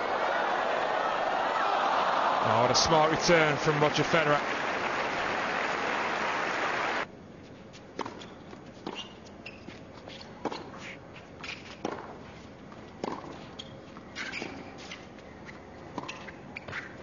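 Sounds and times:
hushed crowd: 0.0s - 7.0s
shoe squeaks: 8.2s - 10.2s, 13.4s - 17.0s.

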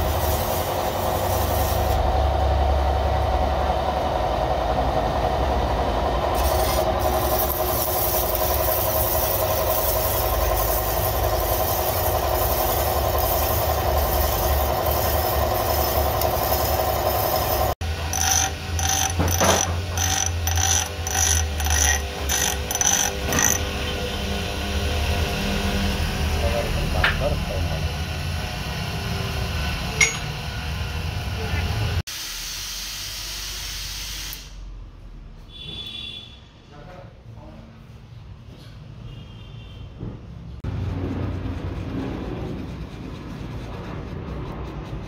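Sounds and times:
bench grinder grinding metal: 0.0s - 2.1s, 6.3s - 25.9s
pillar drill humming: 4.3s - 31.8s.

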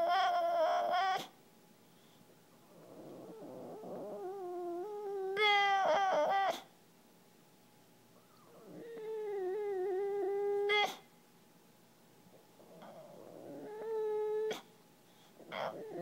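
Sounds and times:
dog whining: 0.0s - 1.4s, 2.7s - 6.7s, 8.2s - 11.1s, 12.6s - 14.7s, 15.4s - 16.0s.

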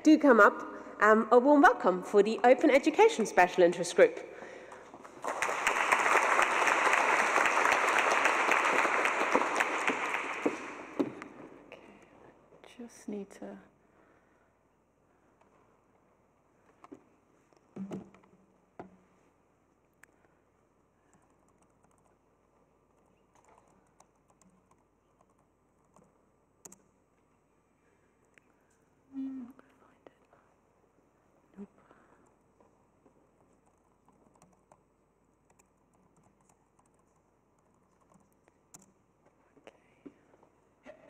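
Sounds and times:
audience applauding: 4.8s - 11.4s
laptop keyboard typing: 21.1s - 22.2s, 22.9s - 26.8s, 33.4s - 39.0s.

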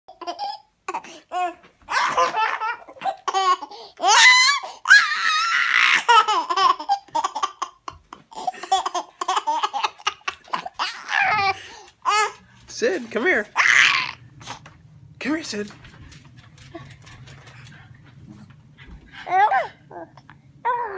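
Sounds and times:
baby laughing: 0.1s - 5.0s, 5.8s - 12.4s.

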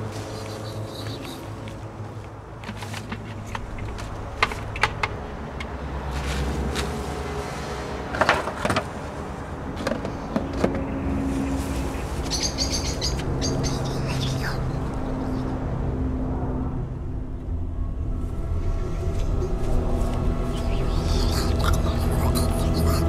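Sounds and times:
steady low hum: 0.0s - 23.0s
bird chirping rapidly: 0.3s - 1.5s, 12.3s - 14.8s.

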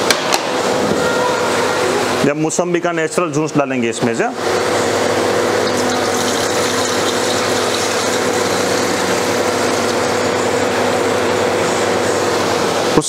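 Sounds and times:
machine running with hum: 4.3s - 13.0s.

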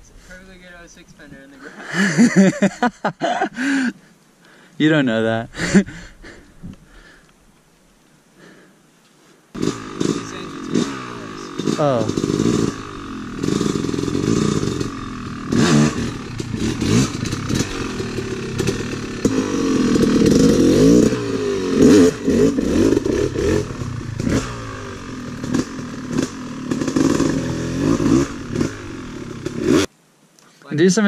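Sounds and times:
dirt bike engine revving: 9.6s - 29.9s.

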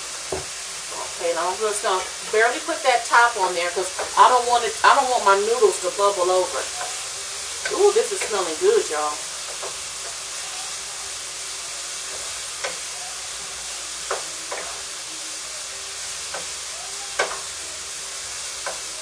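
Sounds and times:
chicken sizzling in a pan: 0.0s - 19.0s
wooden spoon knocking on pan: 0.2s - 1.0s, 3.9s - 4.2s, 9.4s - 10.2s, 14.1s - 14.8s, 17.2s - 17.5s.

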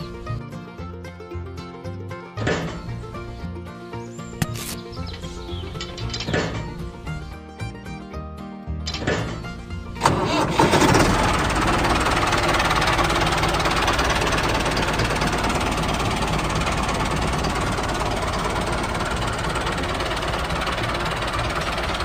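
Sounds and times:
tractor engine knocking: 5.0s - 7.2s, 8.9s - 22.0s.

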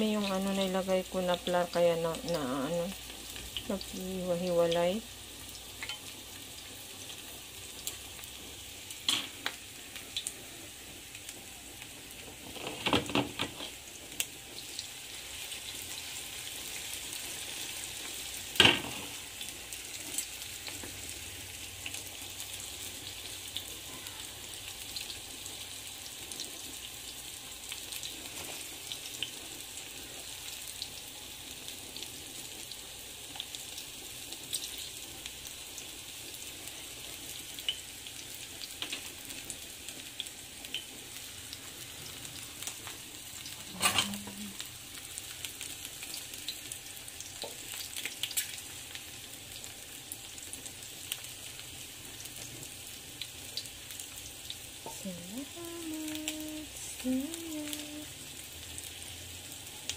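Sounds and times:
fritters sizzling in hot oil: 0.0s - 59.9s
tongs clicking against pan: 5.8s - 6.1s.

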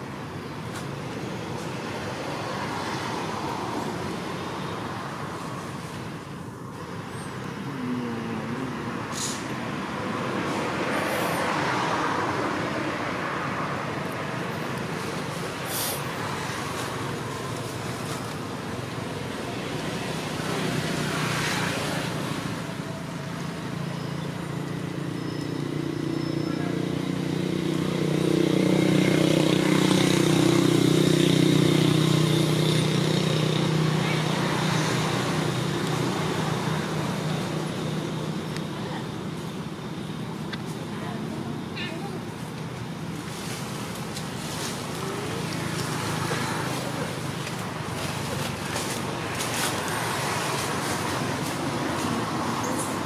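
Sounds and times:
outdoor rumble and hiss: 0.0s - 53.0s
vehicle engine humming: 0.0s - 53.0s.

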